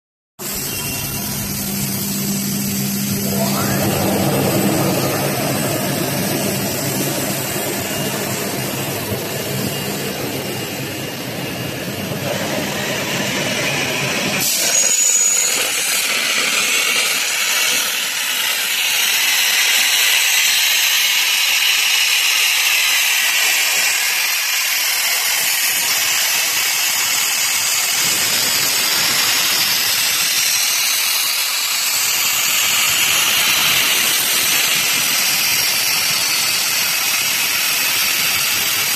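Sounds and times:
machine humming: 0.4s - 15.3s
loud sandblasting hiss: 0.4s - 38.9s.

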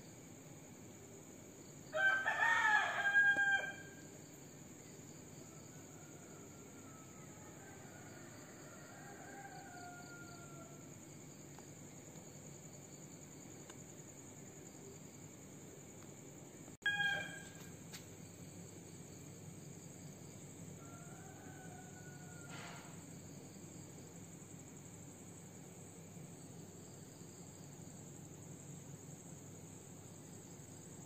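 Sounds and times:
crickets chirring: 0.0s - 31.0s
faint drawn-out animal call: 16.8s - 17.7s, 20.8s - 23.1s.

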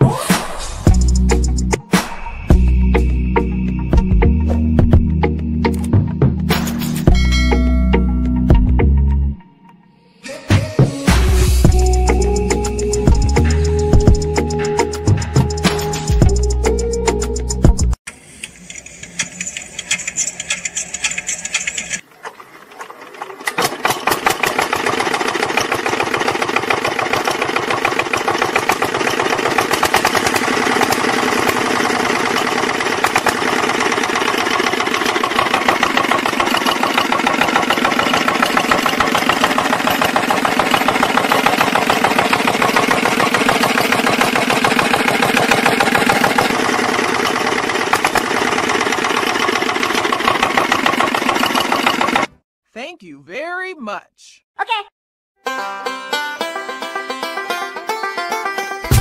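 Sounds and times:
toy engine clattering: 18.1s - 22.0s, 22.9s - 52.4s.

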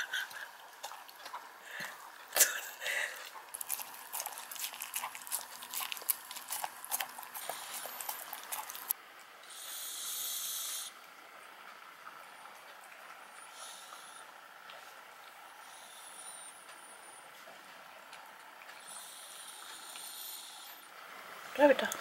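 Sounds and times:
animals lapping and chewing: 0.0s - 22.0s.

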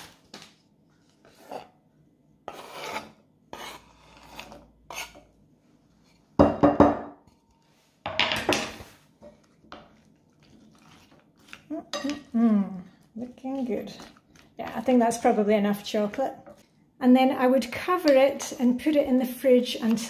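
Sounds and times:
chocolate scraped across wooden board: 2.4s - 5.3s.

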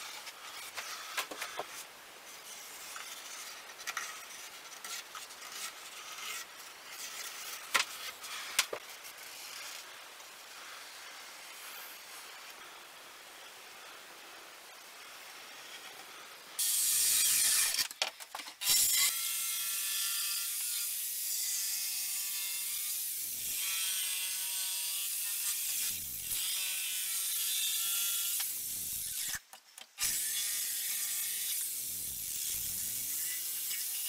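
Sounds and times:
power saw cutting wood: 16.6s - 17.9s.

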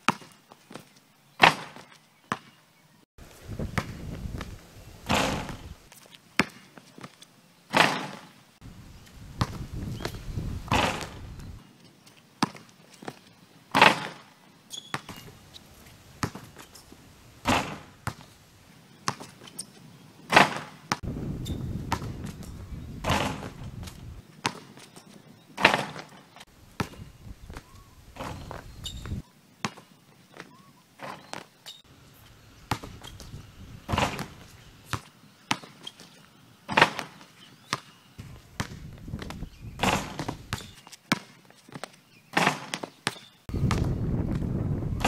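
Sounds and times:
basketball thudding on concrete: 3.6s - 5.7s, 9.4s - 11.6s, 16.2s - 16.7s, 17.4s - 18.3s, 20.3s - 24.7s, 26.8s - 29.8s, 32.7s - 35.7s, 36.8s - 41.3s, 42.4s - 44.5s
basketball hitting rim and backboard: 3.6s - 5.8s, 7.7s - 8.3s, 9.4s - 11.6s, 13.8s - 14.2s, 14.8s - 15.5s, 16.2s - 18.3s, 20.3s - 24.7s, 25.6s - 26.1s, 26.8s - 29.2s, 32.6s - 35.7s, 36.7s - 41.3s, 42.3s - 45.0s.

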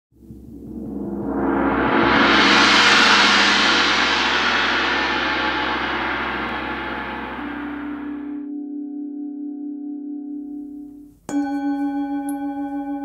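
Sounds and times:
gong ringing: 0.2s - 8.6s.

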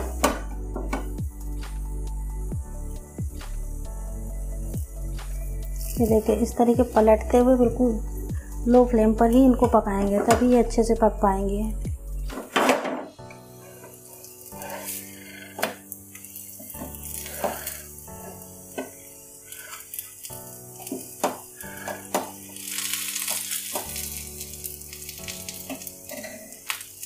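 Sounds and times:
flatbread sizzling in pan: 3.2s - 6.6s, 13.4s - 27.0s.

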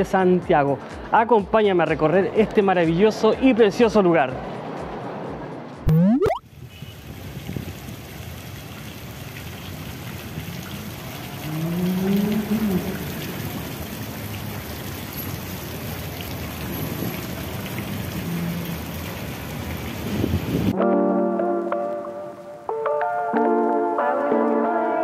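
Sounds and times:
brief rising hum: 5.8s - 6.4s
fountain water splashing: 6.0s - 20.7s.

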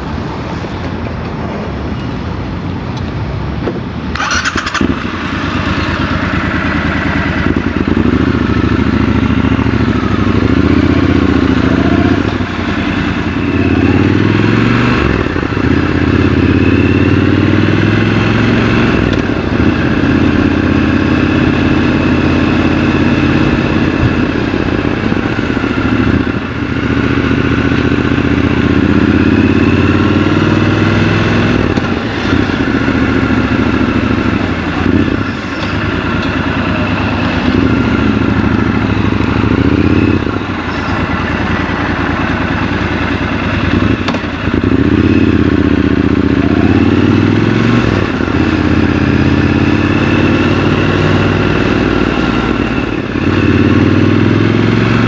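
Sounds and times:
motorcycle engine revving: 4.1s - 55.0s.

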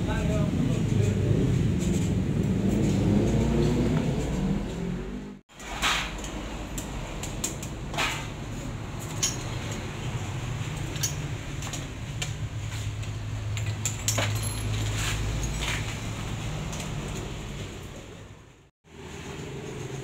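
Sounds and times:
hand tools clinking on metal: 9.0s - 16.0s.

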